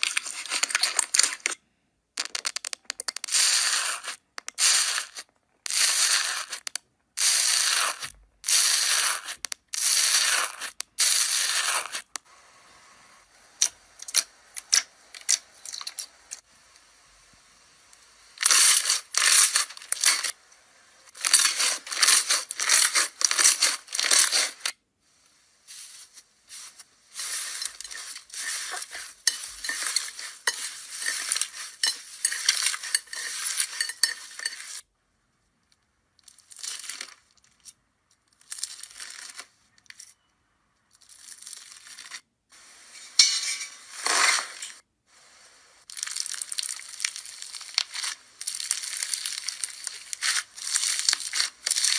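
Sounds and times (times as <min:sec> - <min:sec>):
slime crackling and popping: 0:18.4 - 0:20.4, 0:45.8 - 0:51.9.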